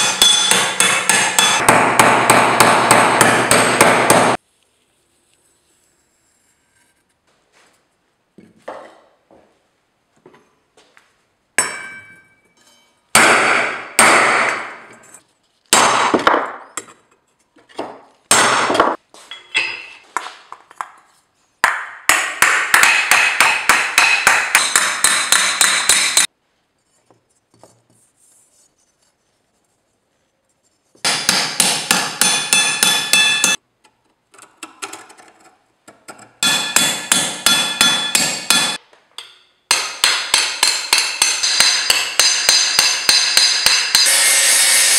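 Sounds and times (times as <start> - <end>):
hammer striking metal plate: 0.0 - 4.4, 11.6 - 12.4, 13.1 - 14.9, 21.6 - 26.3, 31.0 - 33.6, 36.4 - 44.4.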